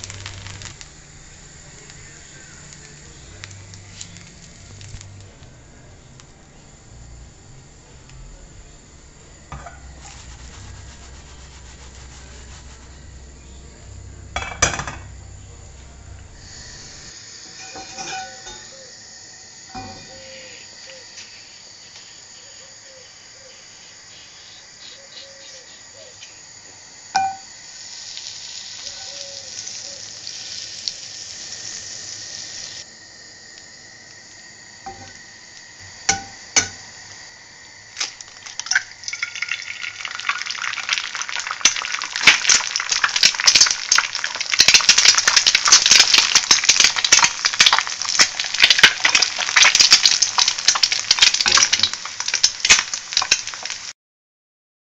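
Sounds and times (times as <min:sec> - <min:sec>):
egg sizzling in frying pan: 0:00.0 - 0:05.4, 0:09.5 - 0:13.1, 0:27.2 - 0:32.9, 0:34.1 - 0:54.0.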